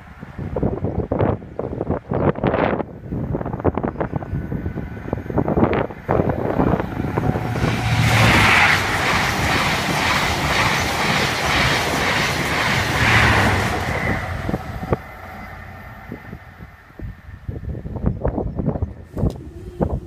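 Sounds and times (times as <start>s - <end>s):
passenger train passing: 0.0s - 20.0s.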